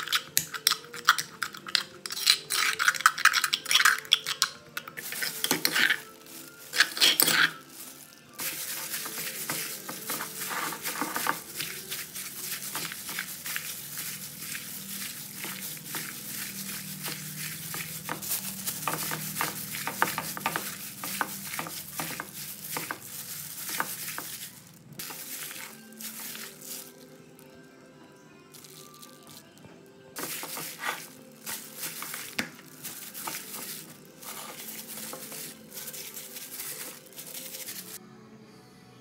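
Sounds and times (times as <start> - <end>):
meat squelching: 0.0 - 27.0, 30.2 - 38.0
plastic glove crinkling: 2.4 - 27.1, 30.2 - 38.0.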